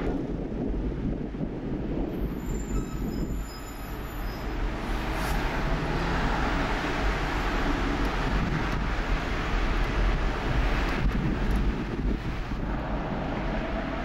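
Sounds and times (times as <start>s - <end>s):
street traffic: 0.0s - 14.0s
tram rumbling: 0.0s - 14.0s
wheel squeals: 2.2s - 4.7s.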